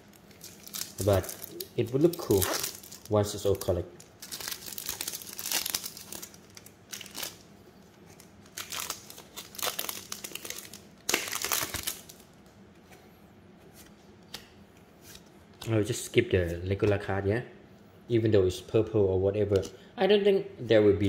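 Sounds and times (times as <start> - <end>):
plastic wrappers crinkling: 0.0 - 7.4, 8.0 - 12.3.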